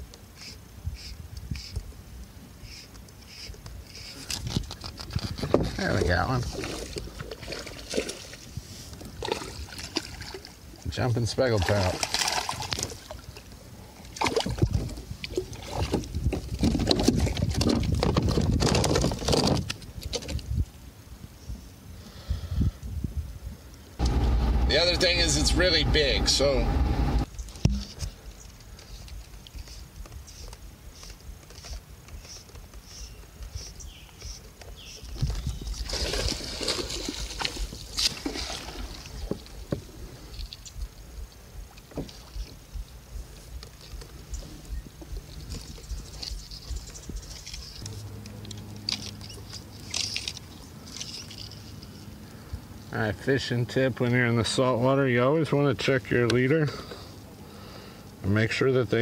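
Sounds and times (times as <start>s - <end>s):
water sloshing: 5.4s - 19.6s, 35.4s - 40.7s
fish thrashing against kayak hull: 11.6s - 13.4s, 14.2s - 20.5s, 35.3s - 39.9s
fishing line rustling: 27.2s - 52.5s.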